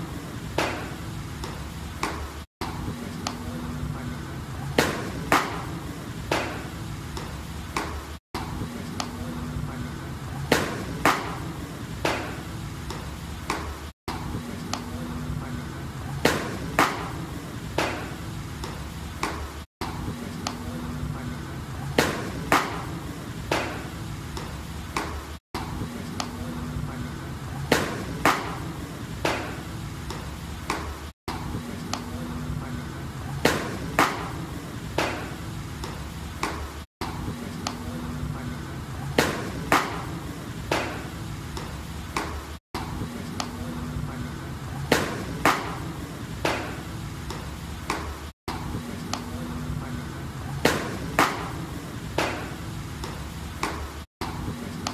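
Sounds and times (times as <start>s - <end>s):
baseballs smacking into mitts: 0.6s - 3.4s, 4.8s - 8.0s, 10.5s - 13.8s, 16.2s - 20.6s, 22.0s - 25.2s, 27.7s - 31.0s, 33.4s - 37.8s, 39.2s - 42.4s, 44.9s - 48.2s, 50.6s - 54.9s.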